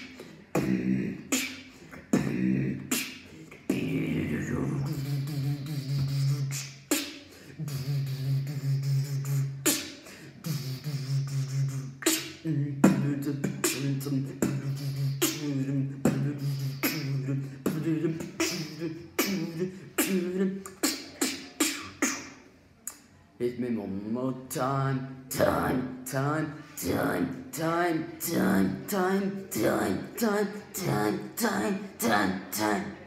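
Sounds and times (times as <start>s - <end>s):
beatboxed kick and snare hits: 5.4s - 7.2s, 16.1s - 17.1s.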